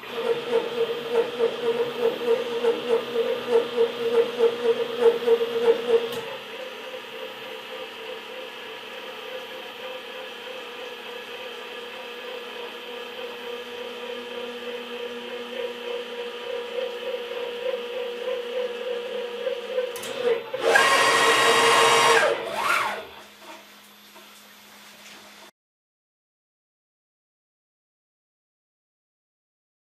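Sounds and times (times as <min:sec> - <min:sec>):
stepper motors whining: 0:15.1 - 0:23.2.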